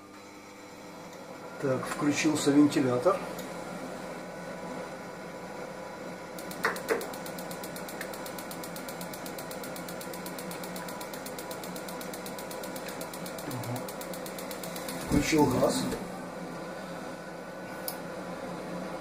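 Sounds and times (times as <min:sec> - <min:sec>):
boiler fan humming: 0:00.0 - 0:19.0
ignition electrode ticking: 0:06.4 - 0:16.1.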